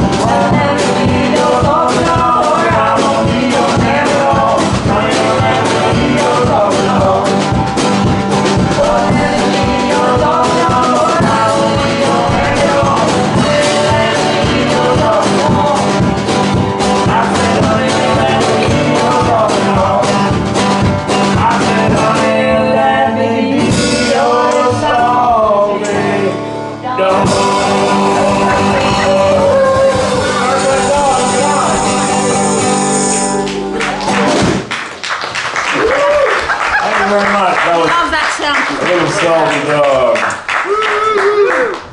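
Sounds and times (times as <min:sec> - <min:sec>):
banjo: 0:00.0 - 0:23.0, 0:25.8 - 0:34.5
upright bass: 0:00.0 - 0:34.8
drums: 0:00.0 - 0:39.2
acoustic guitar: 0:00.0 - 0:39.4
woman singing: 0:08.7 - 0:16.1, 0:26.8 - 0:33.9.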